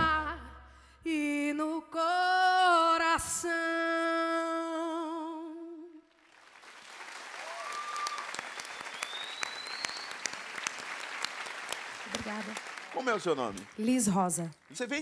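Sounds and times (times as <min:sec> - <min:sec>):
woman singing with vibrato: 0:00.0 - 0:06.1
audience applause: 0:06.2 - 0:15.0.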